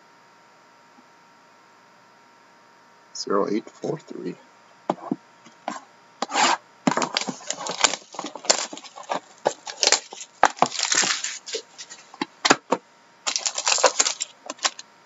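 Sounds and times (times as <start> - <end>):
plastic wrap crinkling and tearing: 6.9 - 12.6, 13.2 - 14.8.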